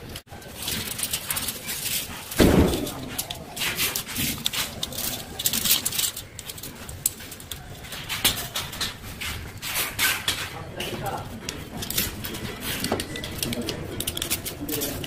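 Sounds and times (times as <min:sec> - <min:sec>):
metal tape crinkling: 0:00.0 - 0:15.0.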